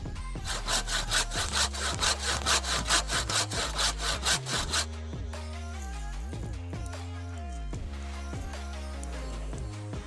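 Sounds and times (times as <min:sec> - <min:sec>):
hand saw cutting wood: 0:00.4 - 0:04.9.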